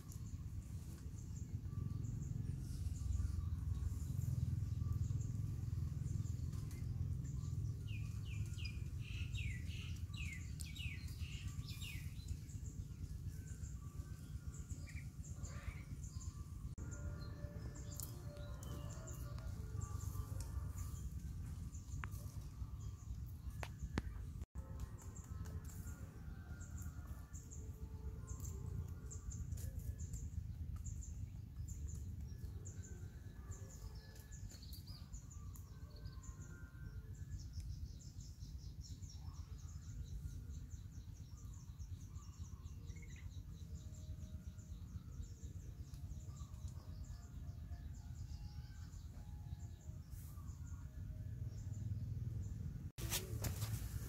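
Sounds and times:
low rumble: 0.0s - 33.4s.

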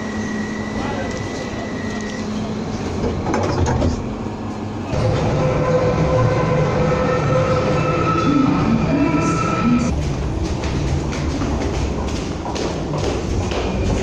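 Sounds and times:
train whining tones: 0.0s - 2.9s, 4.6s - 9.9s
train rumble: 0.9s - 14.0s.

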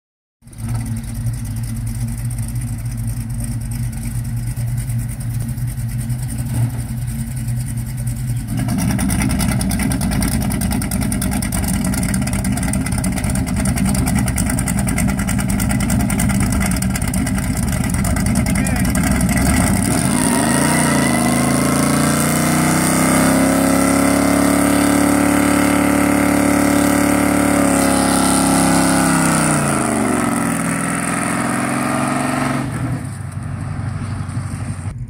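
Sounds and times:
car engine idling: 0.4s - 22.3s, 32.5s - 35.0s.

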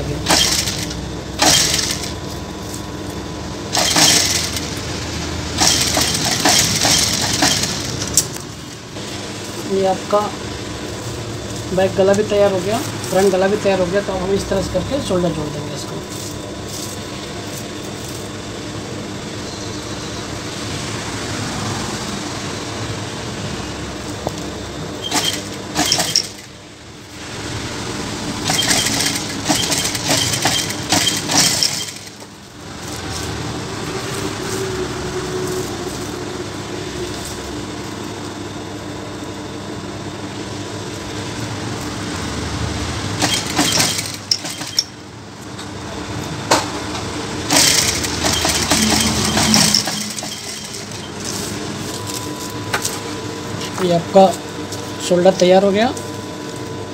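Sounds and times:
sewing machine running: 0.0s - 2.2s, 3.7s - 8.3s, 25.0s - 26.5s, 28.3s - 32.3s, 43.1s - 45.0s, 47.4s - 51.3s.

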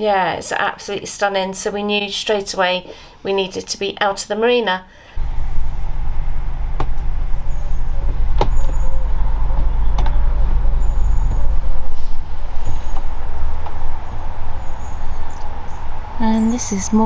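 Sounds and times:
boat diesel engine rumbling: 5.1s - 17.0s.

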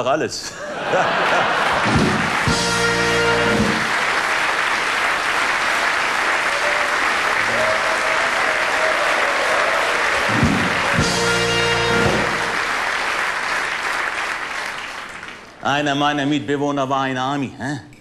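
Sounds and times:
audience applauding: 0.8s - 15.6s
band music: 1.7s - 4.3s, 7.5s - 13.1s.

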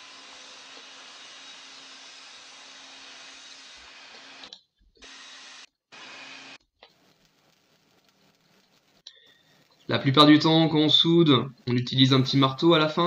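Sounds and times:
welding arc hissing and crackling: 5.0s - 9.0s.

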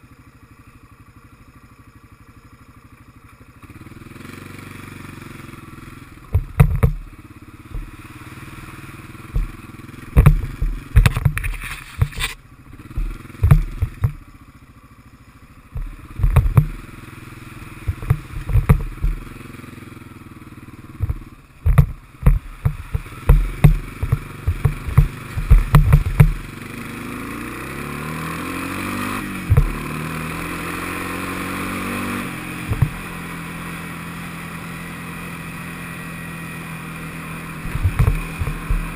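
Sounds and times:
quad bike engine running: 0.0s - 38.9s
knocks and clatter: 6.3s - 7.1s, 7.7s - 8.0s, 9.3s - 14.2s, 15.8s - 16.8s, 17.9s - 19.4s, 21.0s - 26.4s, 29.5s - 29.8s, 32.7s - 33.1s, 37.6s - 38.9s.

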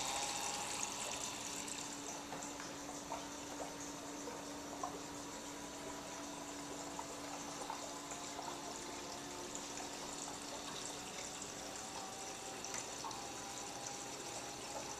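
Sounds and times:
low steady hum: 0.0s - 14.9s
water trickling and splashing: 0.0s - 14.9s.

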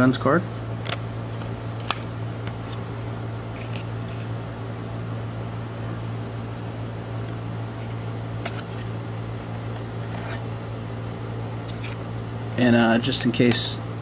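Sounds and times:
low room hum: 0.0s - 14.0s
trading cards rustling and clicking: 0.8s - 4.4s, 7.2s - 12.1s.

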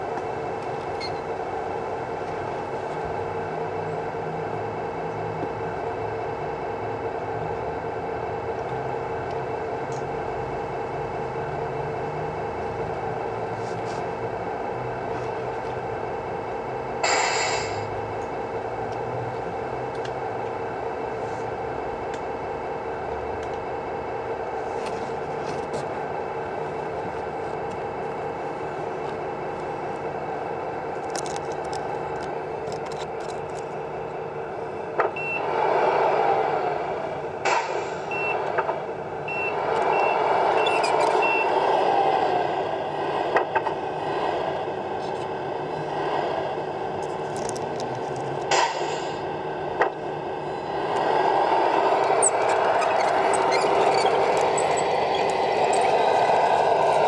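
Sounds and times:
simulated diesel engine: 0.0s - 57.0s
short air hisses: 17.0s - 17.9s, 48.5s - 49.2s
high reversing beeps: 35.2s - 35.4s, 38.1s - 38.4s, 39.3s - 41.6s.

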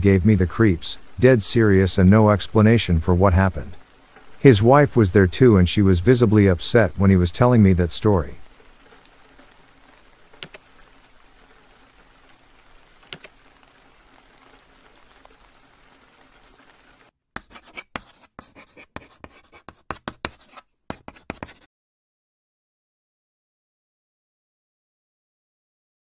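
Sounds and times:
steady rain falling: 0.0s - 17.2s
scratchy clicks and crackles: 8.6s - 21.7s.

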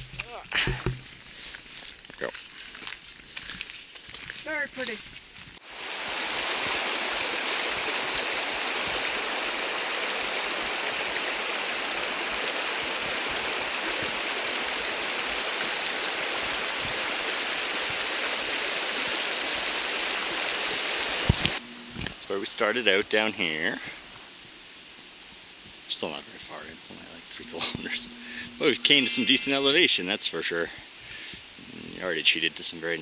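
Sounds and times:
creek water rushing: 5.6s - 21.6s.

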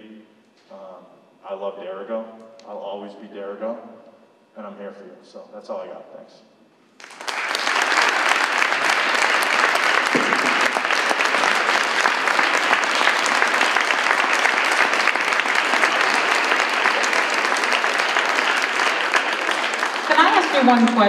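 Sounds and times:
audience applauding: 7.0s - 21.0s.

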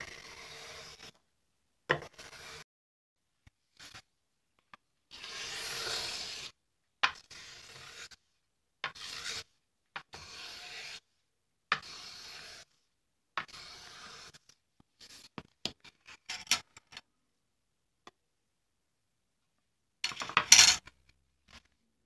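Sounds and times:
hand plane shaving wood: 9.0s - 9.4s, 11.8s - 12.6s.

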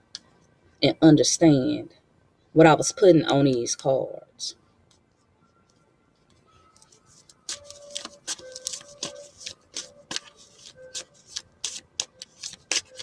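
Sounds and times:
cards shuffling: 6.8s - 13.0s.

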